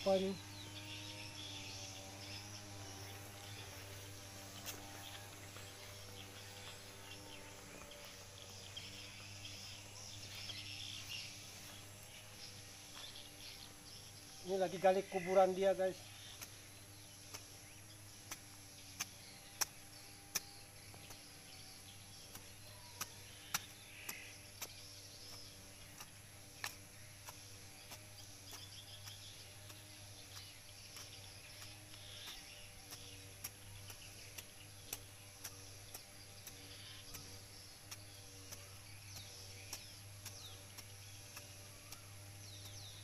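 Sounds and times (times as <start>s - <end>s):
metal blade chopping into soil: 18.2s - 43.0s.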